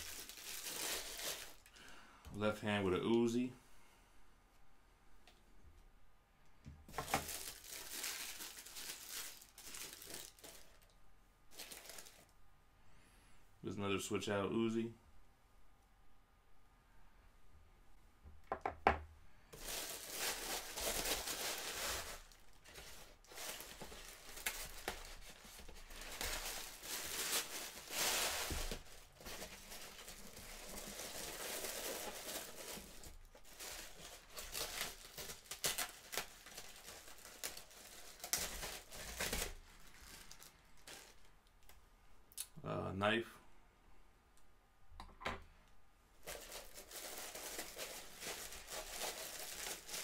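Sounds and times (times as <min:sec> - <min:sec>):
packaging crinkling and tearing: 0:00.0 - 0:01.9, 0:06.9 - 0:12.3, 0:19.6 - 0:41.8, 0:46.2 - 0:50.0.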